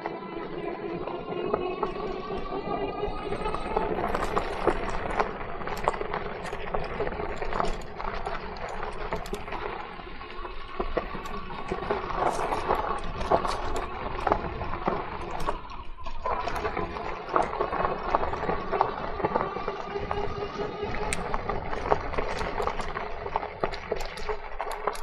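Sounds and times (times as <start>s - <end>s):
bike rattling: 0.0s - 25.0s
tyres crunching over dirt and stones: 0.0s - 25.0s.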